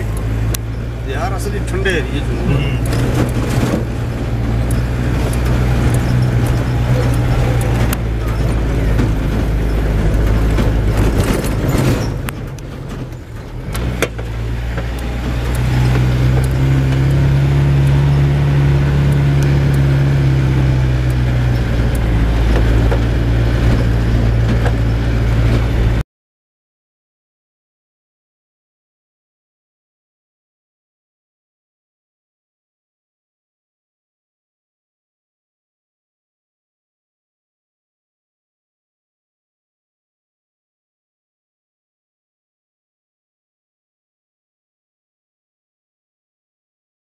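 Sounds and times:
car engine: 0.0s - 26.0s
tyres on rough dirt road: 0.0s - 26.0s.

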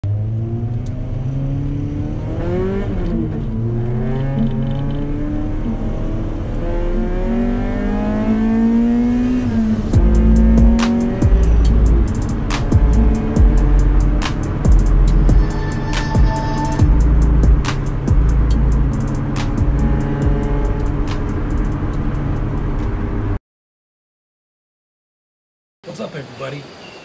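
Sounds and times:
car engine accelerating: 0.0s - 23.4s
music with heavy bass: 9.6s - 23.2s.

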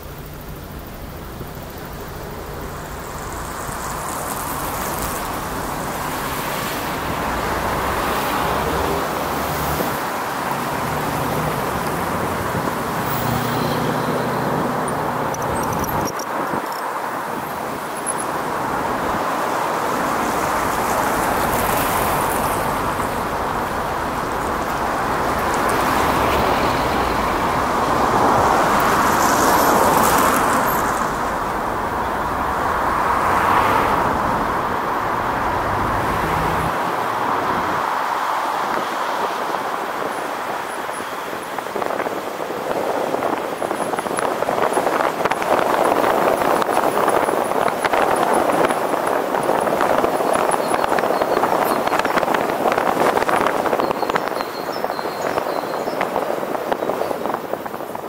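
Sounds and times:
city road traffic: 0.0s - 58.0s.

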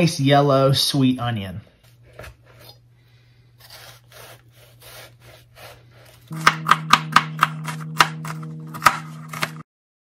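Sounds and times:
knife slicing onion: 3.5s - 9.6s
knife chopping on cutting board: 3.6s - 9.6s.

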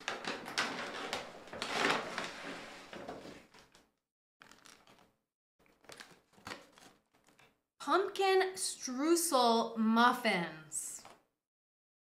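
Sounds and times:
paper bag rustling: 0.0s - 3.6s.

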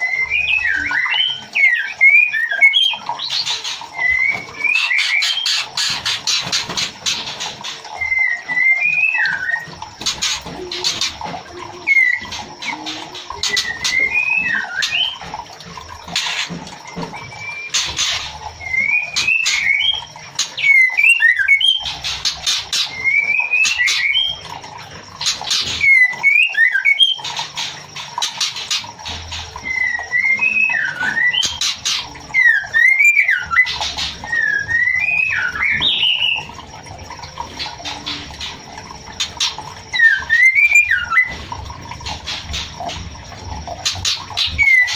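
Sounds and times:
bird whistled calls: 0.0s - 6.4s, 7.9s - 15.9s, 16.9s - 24.5s, 25.4s - 27.4s, 29.6s - 36.6s, 39.3s - 41.4s, 44.0s - 44.9s.

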